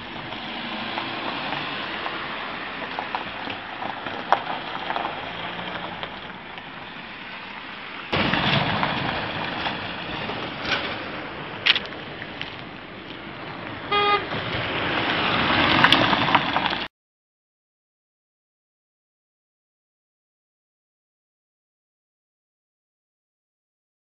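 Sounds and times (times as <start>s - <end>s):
passing cars hissing: 0.0s - 11.6s
loud rush of traffic: 0.0s - 16.9s.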